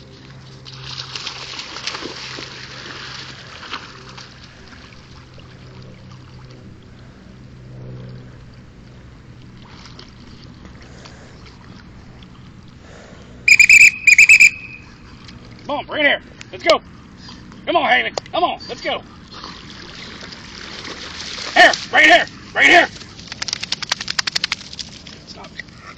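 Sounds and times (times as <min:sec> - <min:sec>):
dog splashing into pond: 0:00.2 - 0:07.0, 0:09.4 - 0:11.8, 0:19.3 - 0:25.3
shrill dog whistle blasts: 0:13.5 - 0:14.9.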